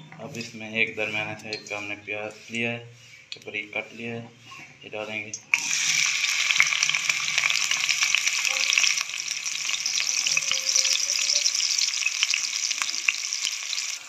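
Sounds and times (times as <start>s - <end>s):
onions sizzling in hot oil: 5.5s - 14.0s.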